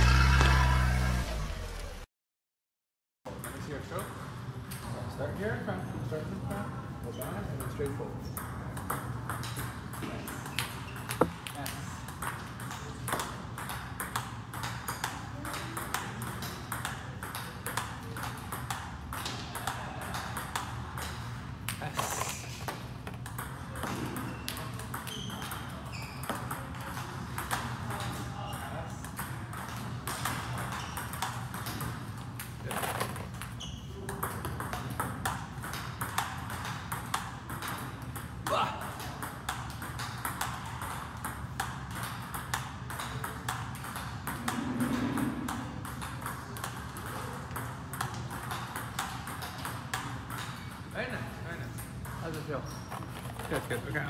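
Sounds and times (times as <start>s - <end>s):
ball bouncing on table: 8.4s - 21.8s, 22.6s - 28.2s, 29.1s - 50.8s
table tennis ball hit with paddle: 8.4s - 28.2s, 29.0s - 50.8s
table tennis ball clicks: 8.8s - 21.8s.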